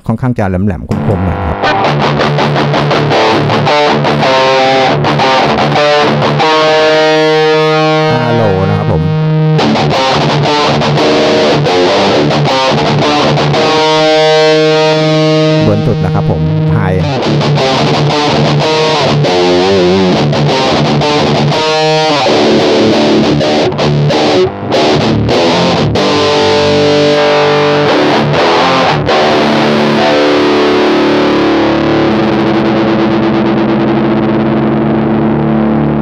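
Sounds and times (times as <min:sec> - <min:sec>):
distorted electric guitar riffing: 0:00.9 - 0:36.0.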